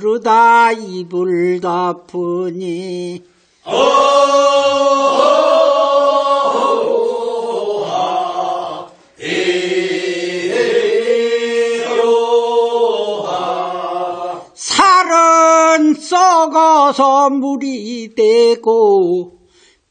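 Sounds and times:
group of voices singing refrain: 0:03.6 - 0:14.6.

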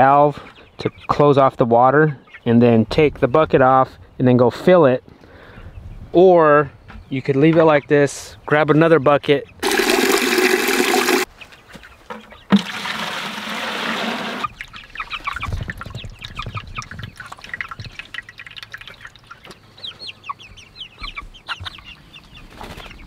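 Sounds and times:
chicks cheeping: 0:00.0 - 0:09.7, 0:11.2 - 0:12.6, 0:14.4 - 0:23.0
water pouring into plastic bucket: 0:09.6 - 0:11.3, 0:12.5 - 0:14.7.

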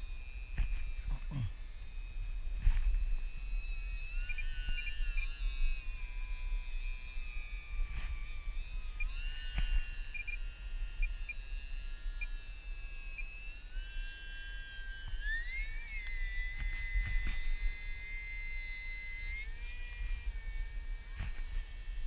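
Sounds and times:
electric motor and propeller whine: 0:00.0 - 0:22.0.

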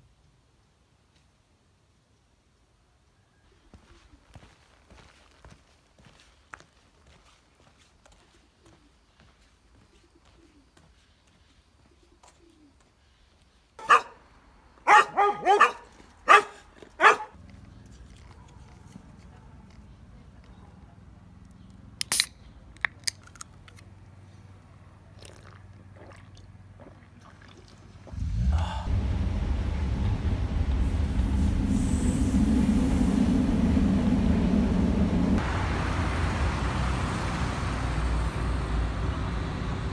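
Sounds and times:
dogs barking: 0:13.8 - 0:14.2, 0:14.8 - 0:17.4
city street traffic: 0:13.8 - 0:27.0, 0:27.8 - 0:39.9
vehicle interior rumble: 0:16.2 - 0:39.9.

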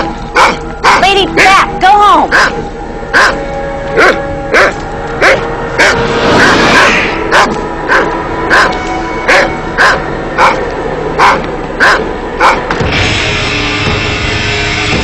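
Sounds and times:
dog barking: 0:00.3 - 0:01.5, 0:02.3 - 0:03.4, 0:04.0 - 0:08.7, 0:09.3 - 0:10.6, 0:11.2 - 0:12.7
rush of noise: 0:05.6 - 0:08.5.

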